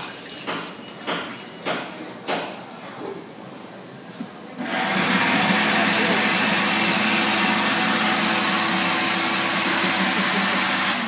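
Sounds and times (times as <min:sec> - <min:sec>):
hand dryer blowing air: 0:04.6 - 0:11.0
motor hum: 0:04.6 - 0:11.0.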